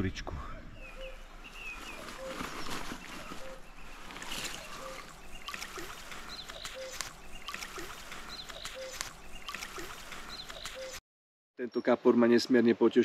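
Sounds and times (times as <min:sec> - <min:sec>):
river water sloshing and trickling: 0:01.9 - 0:10.7
small water splashes: 0:04.1 - 0:10.9.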